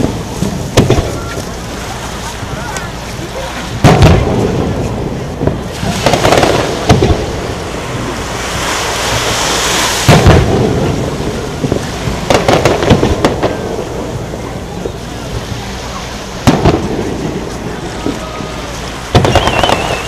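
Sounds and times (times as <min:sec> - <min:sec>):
firework shells booming: 0:00.0 - 0:01.6, 0:03.7 - 0:08.2, 0:10.0 - 0:15.5, 0:16.4 - 0:20.0
firework hiss: 0:00.0 - 0:20.0.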